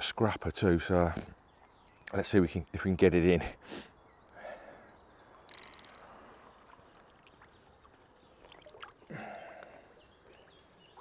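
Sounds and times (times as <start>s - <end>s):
water splashing and sloshing: 6.0s - 11.0s.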